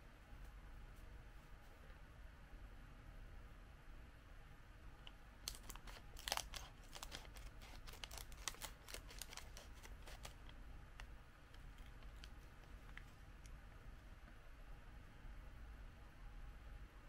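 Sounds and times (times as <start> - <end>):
plastic wrapper crinkling: 5.4 - 10.6, 11.6 - 13.1
scissors cutting plastic wrapper: 5.5 - 10.5.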